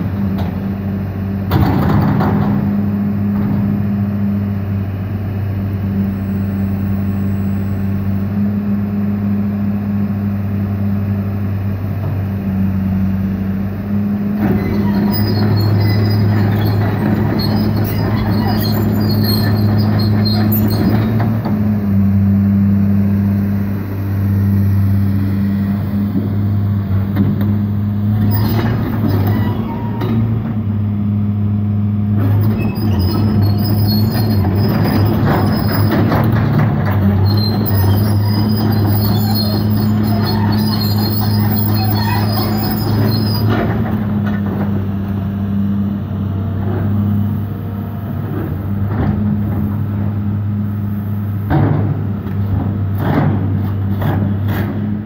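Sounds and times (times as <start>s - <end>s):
excavator diesel engine running: 0.0s - 55.0s
hydraulic and metal clatter: 1.4s - 4.0s, 14.3s - 22.0s, 25.7s - 30.8s, 32.1s - 45.2s, 48.1s - 50.5s, 51.3s - 55.0s
faint high squeaks: 14.5s - 21.2s, 28.2s - 30.2s, 32.3s - 35.9s, 37.0s - 43.6s.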